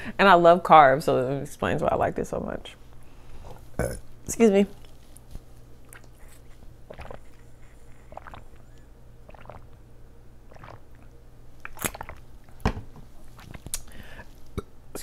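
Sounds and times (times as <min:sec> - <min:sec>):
person gulping water: 0:05.8 - 0:12.6, 0:13.3 - 0:14.7.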